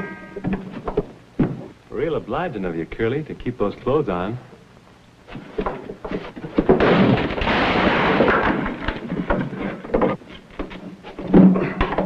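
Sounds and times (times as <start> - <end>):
thuds of bodies and furniture: 0.0 - 1.8, 5.3 - 12.0
crashing and scuffling: 5.3 - 12.0.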